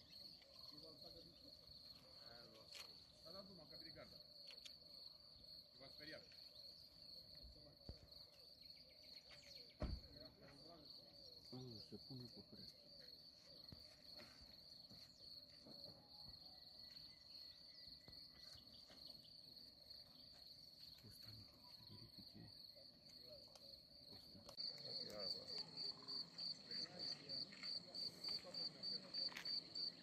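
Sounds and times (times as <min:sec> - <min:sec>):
distant voices talking: 0:23.1 - 0:30.0.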